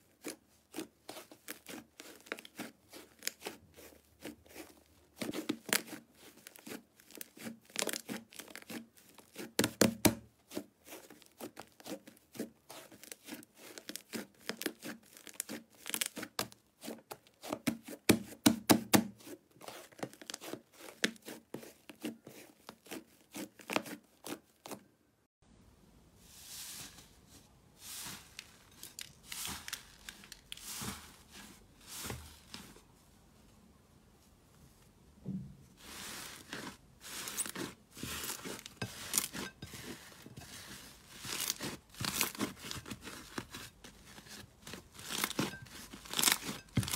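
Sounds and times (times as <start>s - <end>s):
slime crackling and popping: 45.0s - 46.9s.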